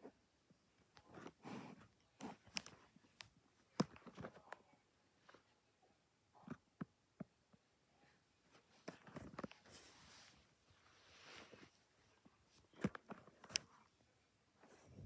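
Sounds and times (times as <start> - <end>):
soft rustling: 8.0 - 15.0.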